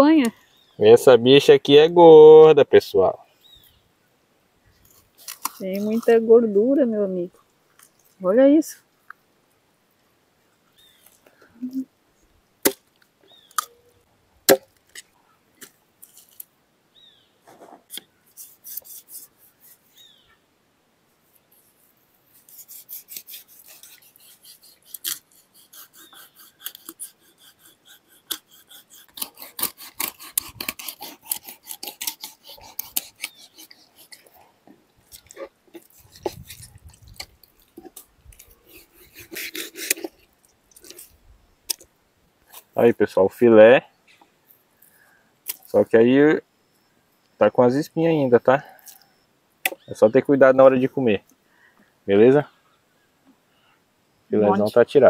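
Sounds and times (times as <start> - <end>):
knife scraping fish flesh: 4.9 - 6.2, 17.9 - 20.0, 21.6 - 34.4, 35.1 - 41.1.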